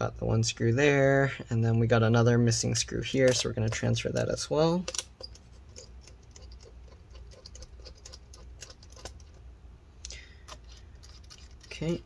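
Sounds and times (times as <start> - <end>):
sharp screw clicks: 3.3 - 9.4
screwdriver driving small screw: 10.4 - 12.0.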